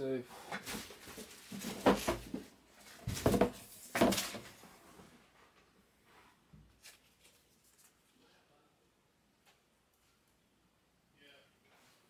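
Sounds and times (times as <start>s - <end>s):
objects knocking and rustling: 0.4s - 5.7s.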